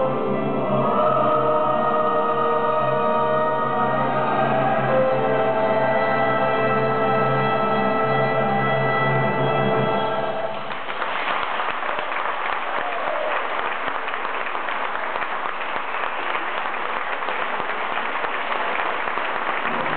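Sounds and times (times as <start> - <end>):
audience applauding: 10.4 - 19.9.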